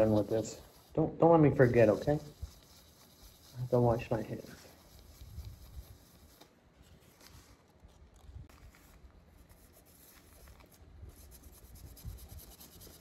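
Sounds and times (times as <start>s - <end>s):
faint rubbing on stone: 0.0s - 6.5s.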